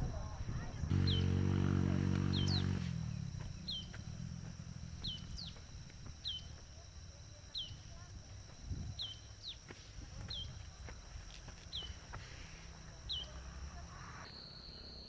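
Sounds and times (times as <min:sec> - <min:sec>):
loud low drone: 0:00.0 - 0:06.1
steady high whine: 0:00.0 - 0:15.0.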